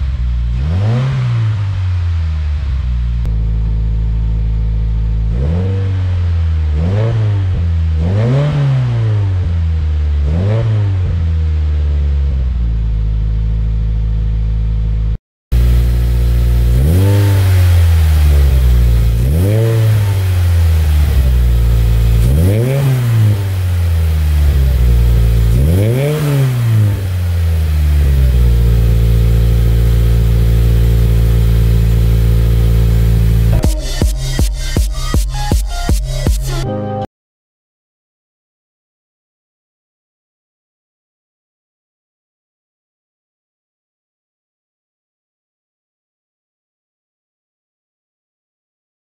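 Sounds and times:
car engine idling and revving: 0:00.0 - 0:36.6.

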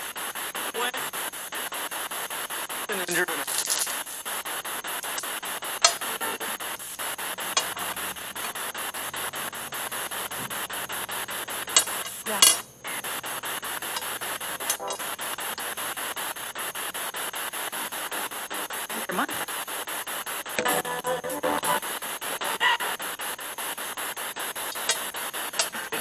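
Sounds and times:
loud crackle: 0:00.0 - 0:26.0
pulsing radio static hiss: 0:00.0 - 0:26.0
sharp clicks: 0:02.1 - 0:16.4, 0:24.4 - 0:26.0.

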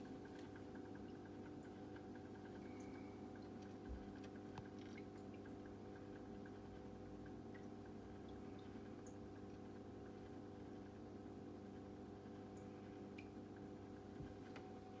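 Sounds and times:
filter humming: 0:00.0 - 0:15.0
water dripping: 0:00.0 - 0:15.0.

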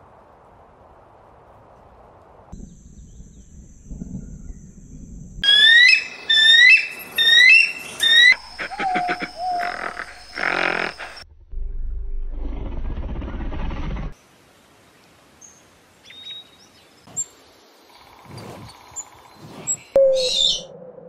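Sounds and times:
faint low rumbling: 0:02.6 - 0:05.4, 0:11.0 - 0:14.1
bird of prey shrill cries: 0:05.4 - 0:08.4
quiet low animal sounds: 0:08.3 - 0:11.2.

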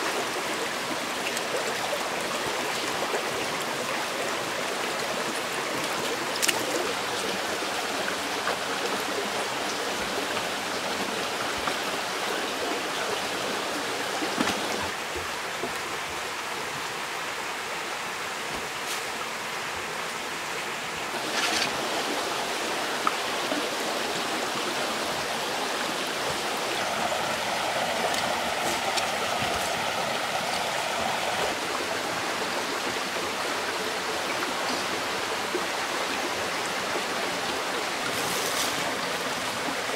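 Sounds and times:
forest stream rushing: 0:00.0 - 0:39.9.

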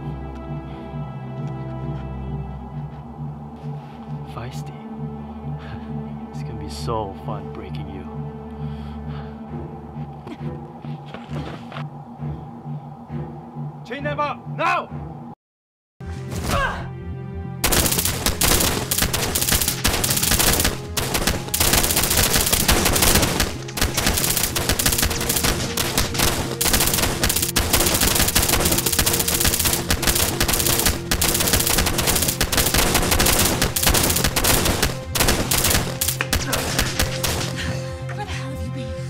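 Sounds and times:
rapid gunfire: 0:17.6 - 0:37.6.

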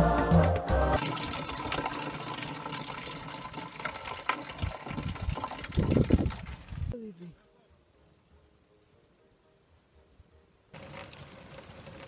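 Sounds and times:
water pouring into watering can: 0:01.0 - 0:06.9, 0:10.8 - 0:12.0.

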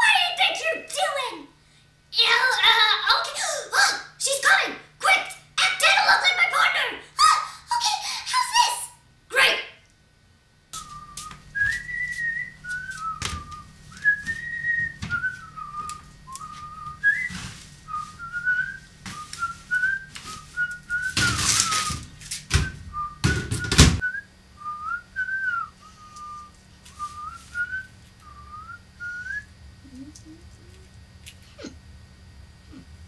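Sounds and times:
person whistling a tune: 0:10.8 - 0:22.0, 0:22.9 - 0:30.1.

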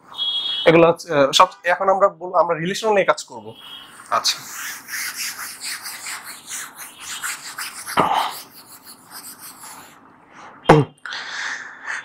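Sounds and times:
whiteboard being wiped by hand: 0:04.2 - 0:09.9.

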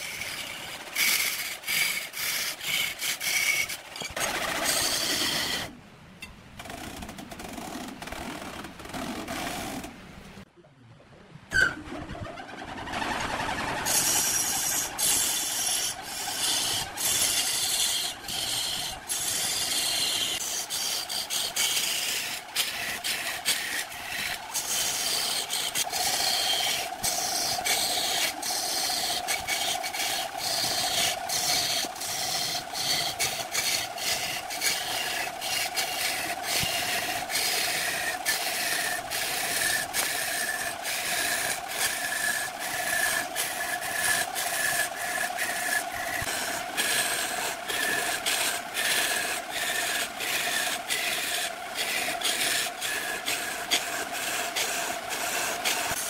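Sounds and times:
lathe tool scraping wood: 0:00.0 - 0:05.7, 0:12.6 - 0:56.0
lathe motor hum: 0:13.2 - 0:56.0.

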